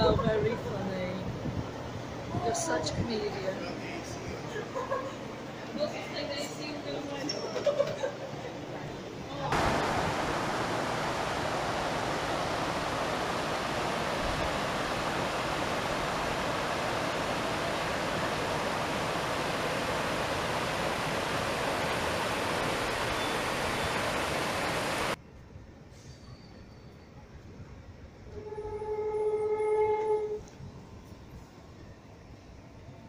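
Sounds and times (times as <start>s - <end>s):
stream rushing over rocks: 9.5s - 25.2s.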